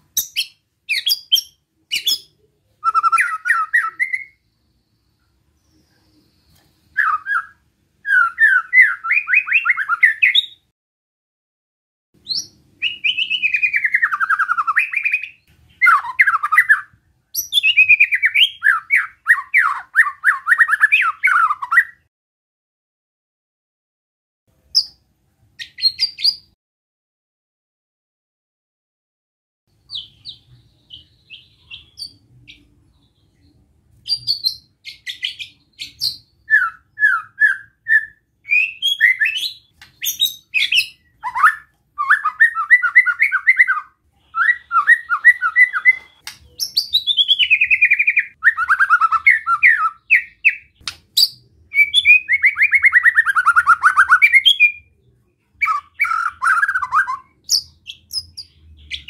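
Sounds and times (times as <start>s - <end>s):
bird singing whistled phrases: 0.2s - 4.4s, 6.9s - 10.6s, 12.2s - 22.0s, 34.0s - 55.0s, 55.6s - 59.0s.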